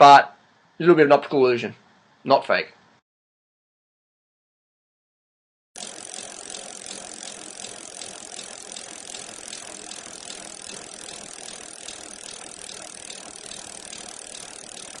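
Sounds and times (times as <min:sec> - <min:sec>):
bicycle freehub ratchet clicking: 0:05.8 - 0:15.0.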